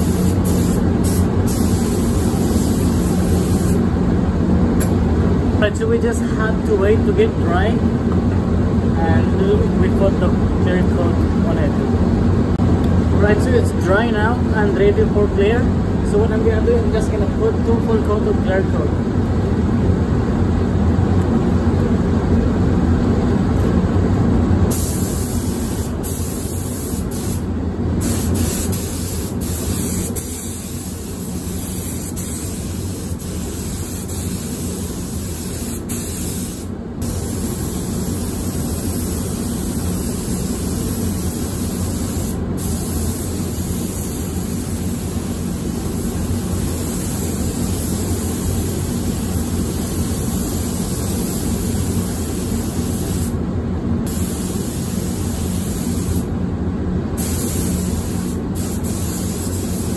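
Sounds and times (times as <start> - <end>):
spray gun hissing: 0.0 - 3.8, 24.7 - 53.4, 54.1 - 56.3, 57.2 - 59.9
steady low rumble: 0.0 - 59.9.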